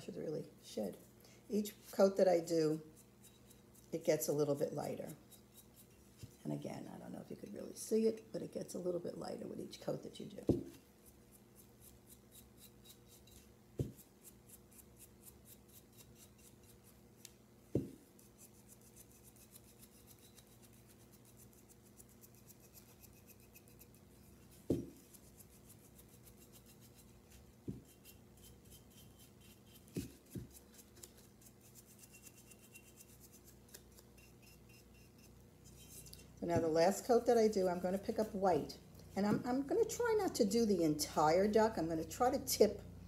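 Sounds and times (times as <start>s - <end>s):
paintbrush bristles scratching: 1.7s - 6.6s, 10.6s - 41.2s
soft knocks of figurine handled: 24.7s - 25.0s.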